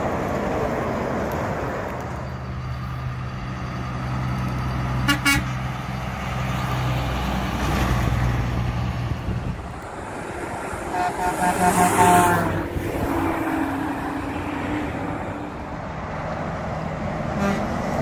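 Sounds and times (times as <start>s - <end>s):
truck diesel engine driving past: 0.0s - 18.0s
truck horn toot: 5.0s - 5.6s, 10.8s - 12.6s, 17.4s - 17.8s.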